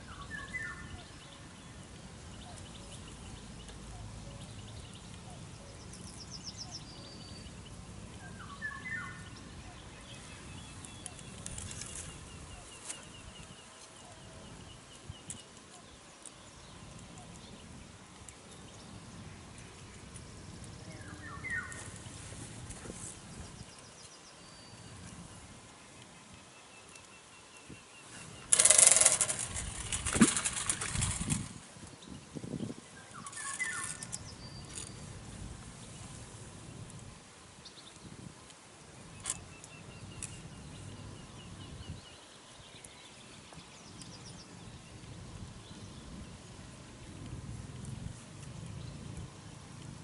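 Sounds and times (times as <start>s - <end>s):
bird chirping: 0.0s - 22.2s, 23.2s - 35.1s
fishing reel line whirring: 28.5s - 31.5s
faint bird chirps: 32.0s - 35.1s.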